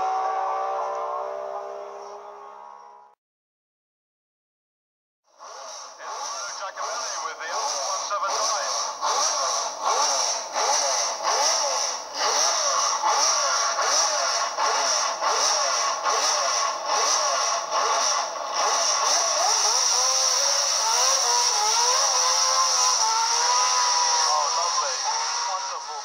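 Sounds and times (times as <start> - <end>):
racing car engine revving: 0.0 - 3.2, 5.3 - 26.0.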